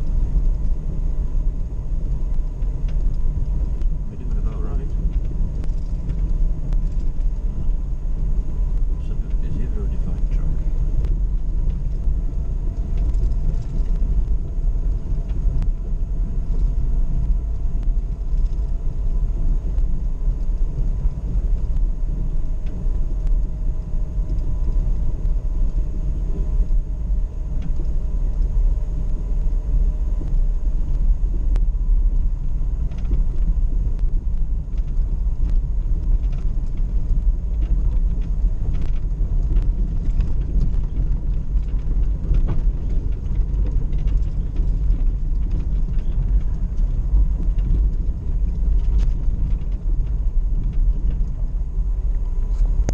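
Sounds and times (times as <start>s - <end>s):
engine and drivetrain rumble: 0.0s - 52.9s.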